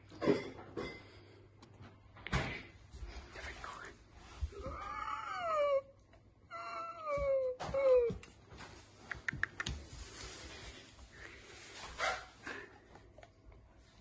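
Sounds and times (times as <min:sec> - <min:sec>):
animal crying: 0:04.6 - 0:08.2.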